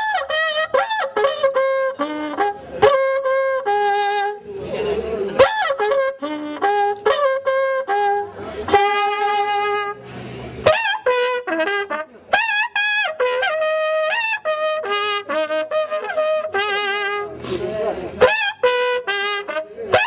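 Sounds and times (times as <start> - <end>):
horn trumpet blasts: 0.0 - 20.0.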